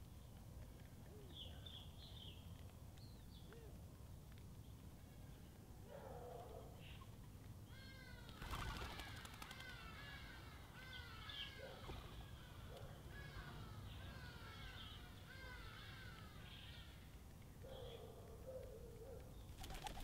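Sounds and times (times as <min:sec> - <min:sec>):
small songbirds chirping: 0:00.0 - 0:08.0, 0:08.8 - 0:20.0
rattling wing flutter: 0:08.4 - 0:09.8.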